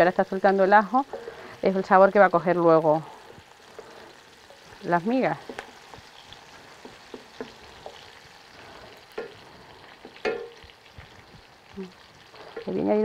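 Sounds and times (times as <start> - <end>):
food sizzling in a pan: 0.0 - 13.0
utensil knocking against pan: 6.8 - 8.0, 10.0 - 10.6.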